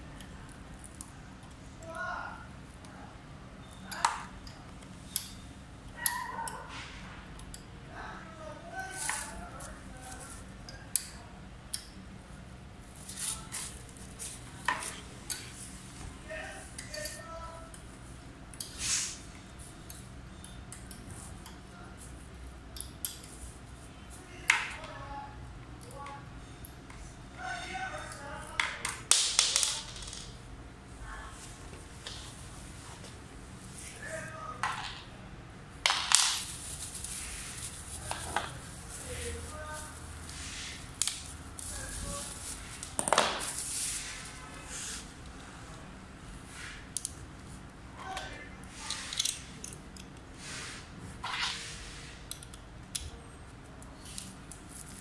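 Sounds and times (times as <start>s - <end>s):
bubble wrap crinkling: 12.8s - 16.0s, 36.0s - 44.5s, 54.1s - 55.0s.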